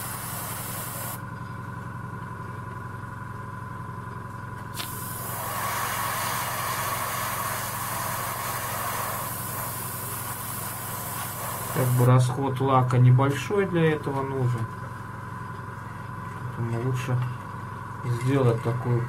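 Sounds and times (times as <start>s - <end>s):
airbrush spray hissing: 0.0s - 1.2s, 4.8s - 12.1s
compressor humming: 0.0s - 1.5s, 4.7s - 12.6s.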